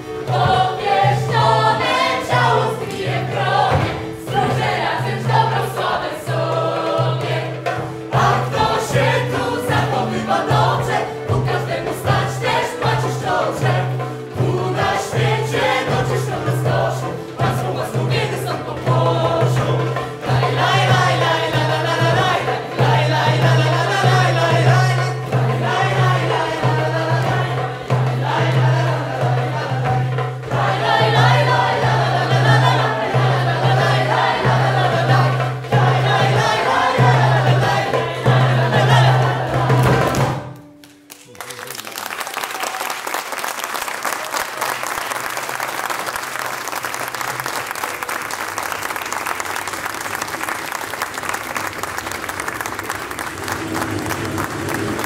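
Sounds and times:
choir singing: 0:00.0 - 0:40.6
audience applauding: 0:40.7 - 0:55.0.

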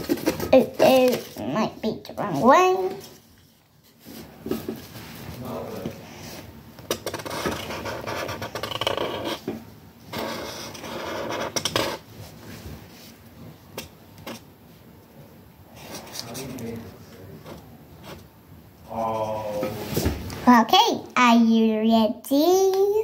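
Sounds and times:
hand scratching and rubbing paper: 0:06.2 - 0:09.4, 0:10.1 - 0:13.2.

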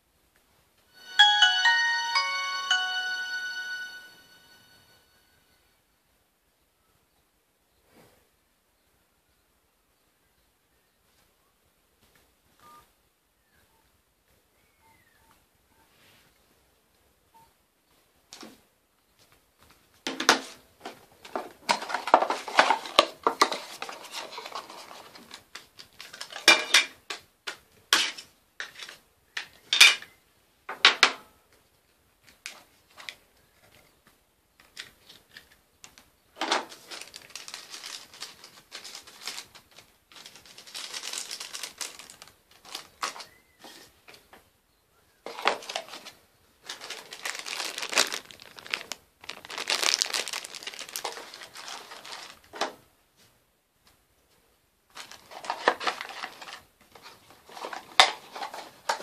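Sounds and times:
cardboard box rustling: 0:46.7 - 0:52.4.

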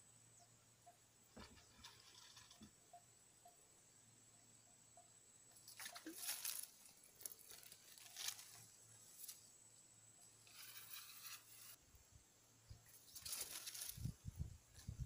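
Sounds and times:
leaves and grass rustling: 0:05.6 - 0:09.5, 0:10.4 - 0:11.8, 0:12.8 - 0:15.0.

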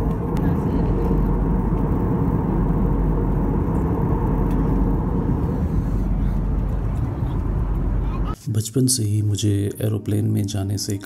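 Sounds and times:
jet airliner cabin noise: 0:00.0 - 0:08.4.

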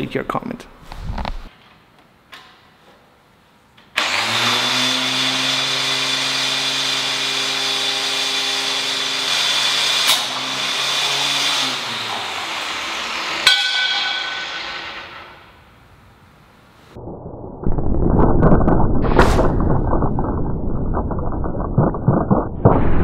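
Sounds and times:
sharp crack: 0:17.7 - 0:23.0.

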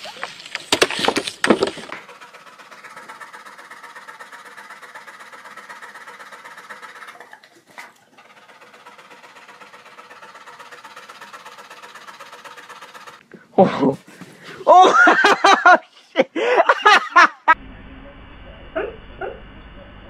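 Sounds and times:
dog panting rapidly: 0:02.0 - 0:13.2.

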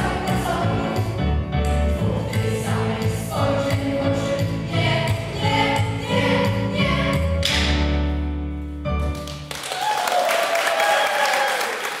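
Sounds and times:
choir singing: 0:00.0 - 0:07.4
audience applauding: 0:09.2 - 0:12.0.

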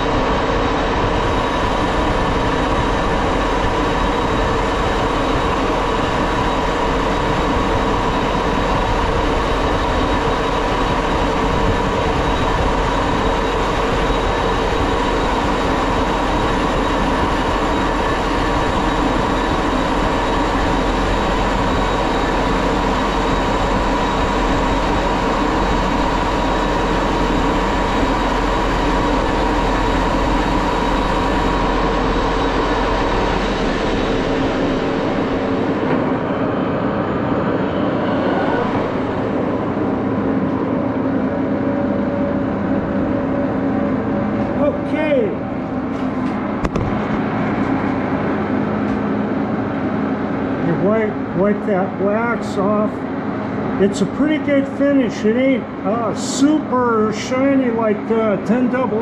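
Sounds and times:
lathe whine and hum: 0:00.0 - 0:59.0.

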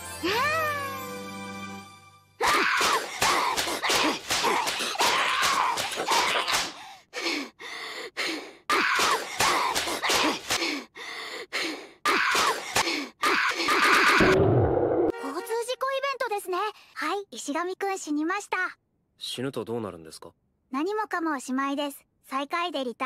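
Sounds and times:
person crying out: 0:00.2 - 0:01.0.

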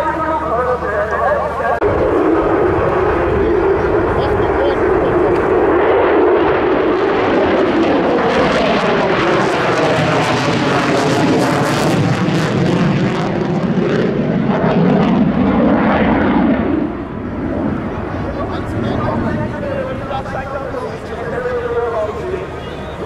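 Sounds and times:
fighter jet passing: 0:00.0 - 0:23.0.

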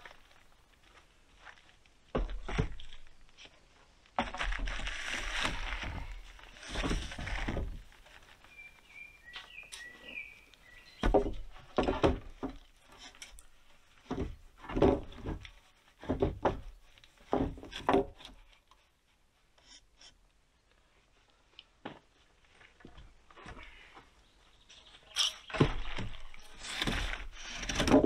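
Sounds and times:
wood scraping on wood: 0:04.2 - 0:08.4, 0:25.2 - 0:28.0
wooden poles knocking: 0:11.0 - 0:12.6, 0:14.1 - 0:15.4, 0:16.0 - 0:18.3.

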